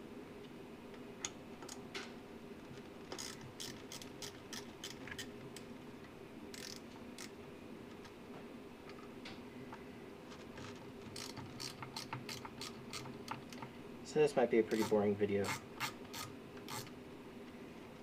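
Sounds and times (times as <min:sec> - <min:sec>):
steady low hum: 0:00.0 - 0:18.0
socket ratchet clicking: 0:03.2 - 0:05.3, 0:06.5 - 0:07.3, 0:11.2 - 0:13.4, 0:14.7 - 0:16.9.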